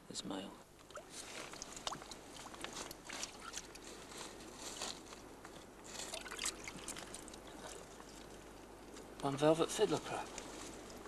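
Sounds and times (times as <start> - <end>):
small splashes: 0.8 - 3.8, 6.0 - 8.3
water trickling among rocks: 0.8 - 4.0, 5.9 - 8.6.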